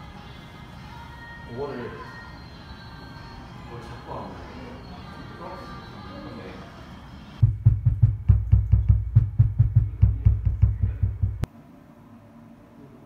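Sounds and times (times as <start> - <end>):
rapid dull knocks: 7.4 - 11.5.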